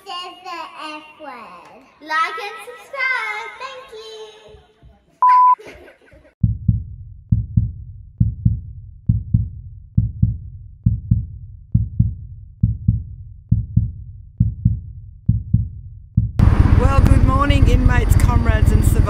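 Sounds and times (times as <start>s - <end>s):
heartbeat double thump: 6.4s - 18.8s.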